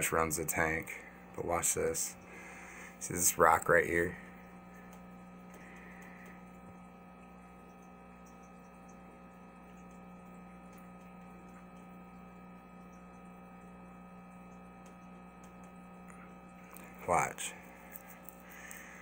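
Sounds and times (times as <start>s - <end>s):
aquarium equipment humming: 0.0s - 19.0s.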